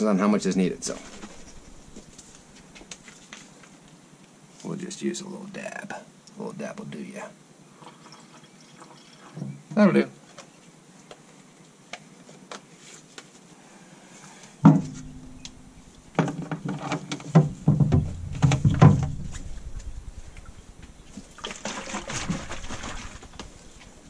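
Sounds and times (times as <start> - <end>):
water sloshing: 0.6 - 3.2, 14.6 - 24.0
plastic knocks and clatter: 14.6 - 23.6.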